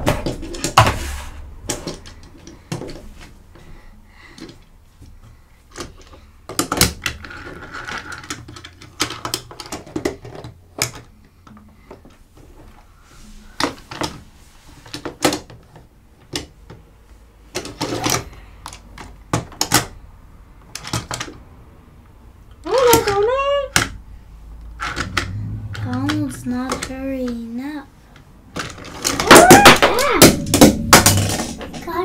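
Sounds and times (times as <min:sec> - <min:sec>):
plastic toy pieces clicking: 0:05.7 - 0:11.6, 0:24.8 - 0:27.4.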